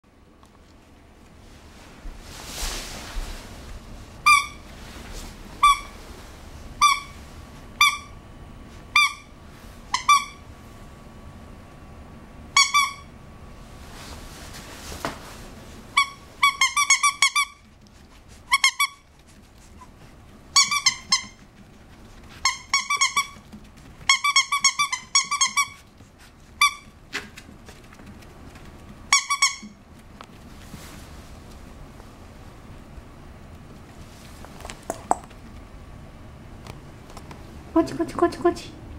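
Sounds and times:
toy squeaker squeaking: 6.8s - 7.2s, 9.9s - 10.4s, 12.6s - 13.1s, 16.0s - 17.6s, 20.6s - 21.4s, 22.4s - 23.4s, 24.1s - 25.8s, 29.1s - 29.7s.

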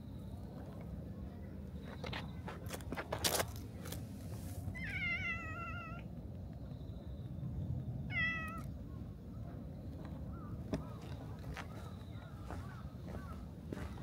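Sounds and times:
cat meowing: 4.8s - 6.1s, 8.1s - 8.7s.

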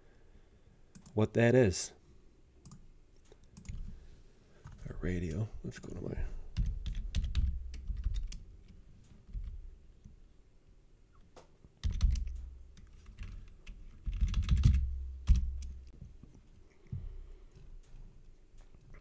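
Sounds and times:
typing on computer keyboard: 3.5s - 3.9s, 6.6s - 9.6s, 11.8s - 15.8s.

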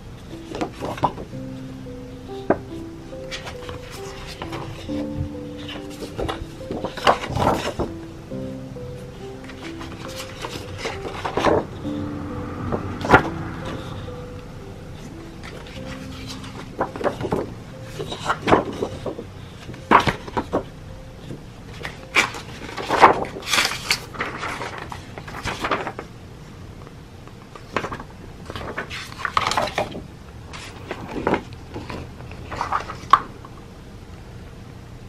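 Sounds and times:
paper rustling and crinkling: 0.2s - 1.3s, 2.4s - 8.0s, 9.4s - 11.6s, 15.4s - 26.1s, 27.5s - 33.3s.

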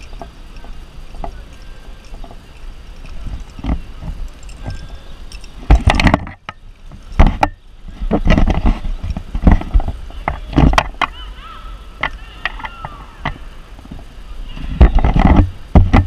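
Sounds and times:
camera handling knocks and bumps: 5.6s - 6.6s.

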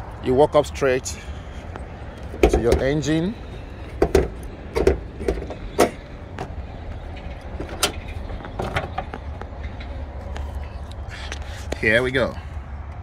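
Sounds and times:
car hood latch clicks and clunks: 4.0s - 6.5s, 7.6s - 9.1s.

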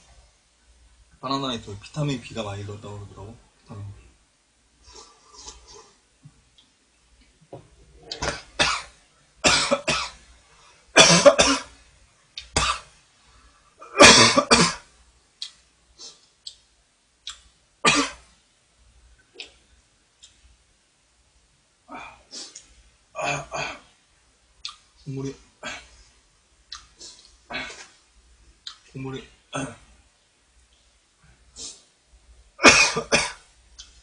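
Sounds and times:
man coughing: 8.2s - 10.2s, 11.0s - 11.7s, 13.9s - 14.8s, 17.9s - 18.2s, 32.6s - 33.4s.

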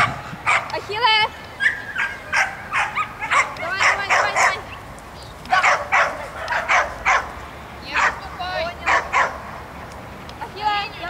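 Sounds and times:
dog barking: 0.0s - 0.8s, 1.6s - 4.8s, 5.5s - 9.5s.

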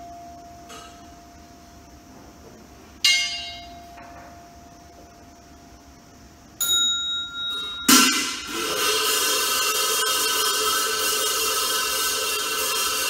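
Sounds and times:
small high-pitched bell: 6.6s - 8.4s
bowl bell ringing: 6.6s - 8.8s
loud metallic crash: 7.8s - 13.0s.

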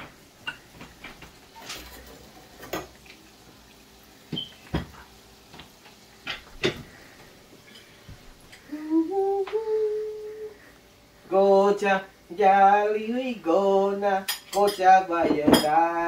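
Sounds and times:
man singing notes: 8.7s - 10.6s.

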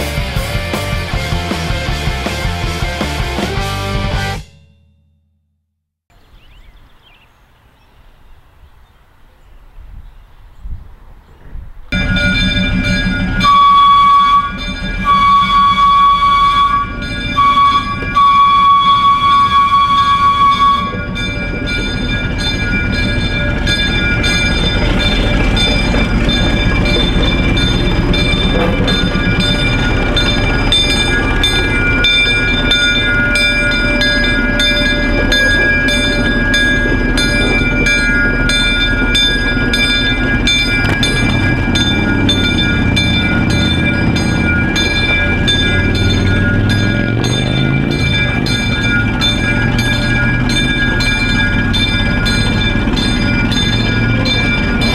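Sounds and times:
locomotive engine running: 0.0s - 4.5s, 11.7s - 54.9s
locomotive bell ringing: 3.5s - 5.4s, 11.9s - 54.9s
locomotive horn blast: 12.0s - 54.9s.

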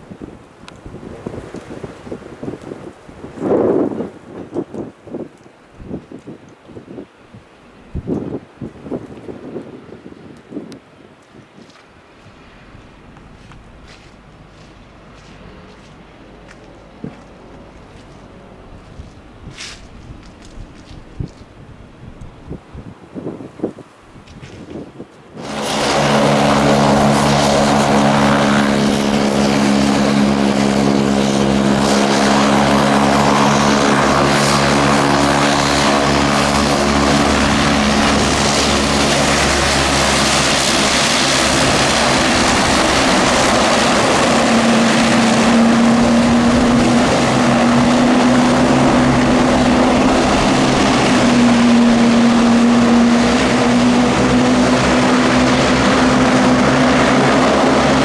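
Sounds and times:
turboprop engines running: 12.1s - 21.4s, 25.3s - 58.0s
higher wavering engine tone: 25.4s - 58.0s.

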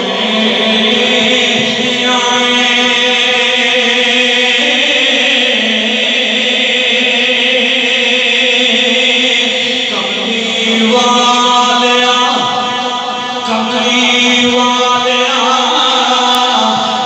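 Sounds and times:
amplified devotional chanting: 0.0s - 17.0s.

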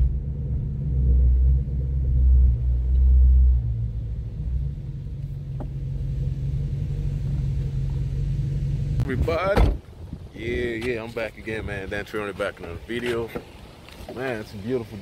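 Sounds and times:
road rumble inside car: 0.0s - 11.2s
car engine hum: 0.0s - 15.0s.

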